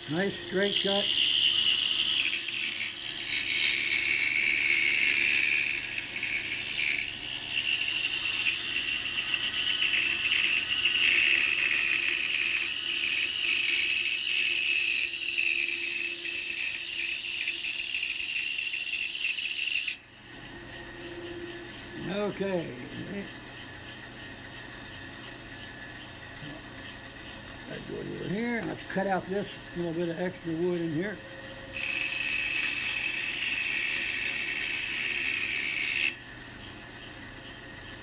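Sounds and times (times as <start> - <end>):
scroll saw cutting wood: 0.0 - 20.1, 29.8 - 36.2.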